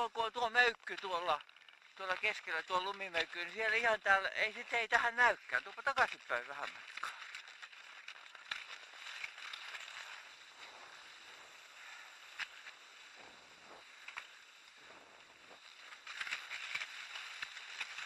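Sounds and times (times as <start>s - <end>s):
ski pole clicking in hard snow: 0.5s - 18.0s
skis hissing on snow: 10.0s - 16.0s.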